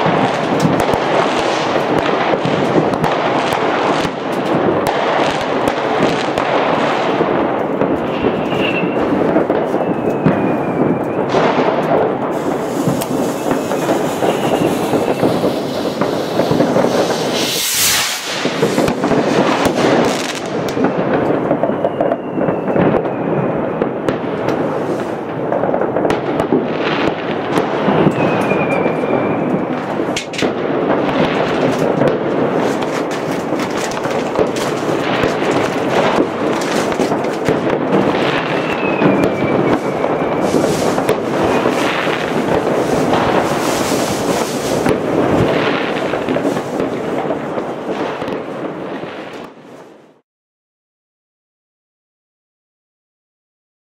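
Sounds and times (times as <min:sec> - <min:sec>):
fireworks and firecrackers banging: 0:00.0 - 0:50.2
firework whistles: 0:08.1 - 0:23.8, 0:27.5 - 0:30.1, 0:33.5 - 0:46.9.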